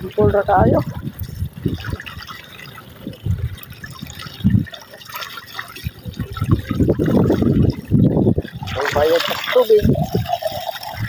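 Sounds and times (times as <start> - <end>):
water filling plastic bottle: 0.0 - 11.0
water splashing into mud: 0.0 - 11.0.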